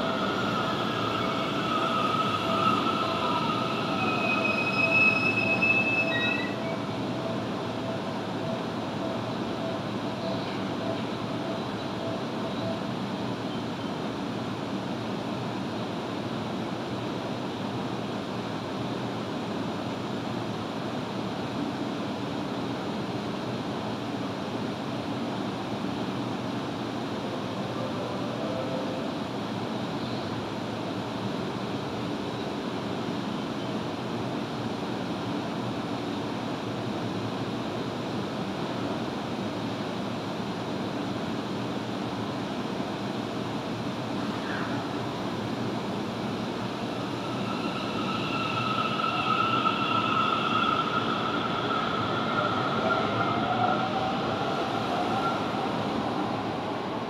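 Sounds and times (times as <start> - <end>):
idle electric train humming: 0.0 - 17.6, 25.5 - 31.4, 36.3 - 57.0.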